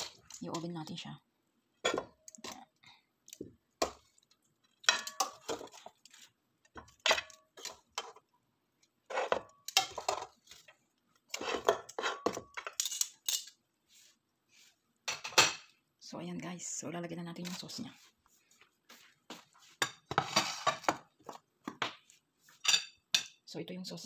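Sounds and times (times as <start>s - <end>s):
utensil scraping metal pan: 19.9s - 20.9s.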